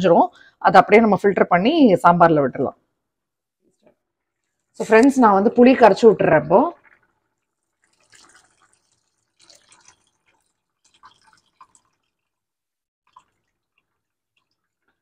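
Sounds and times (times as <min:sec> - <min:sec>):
liquid dripping and splashing: 0:03.7 - 0:05.2, 0:06.6 - 0:15.0.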